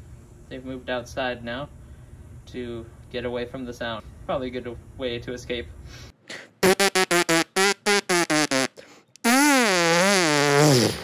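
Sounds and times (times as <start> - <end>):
trumpet playing: 6.6 - 8.7.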